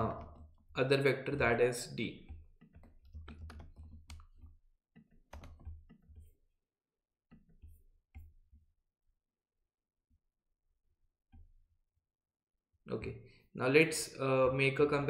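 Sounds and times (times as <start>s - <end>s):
keyboard typing clicks: 2.2s - 4.6s, 5.3s - 6.3s.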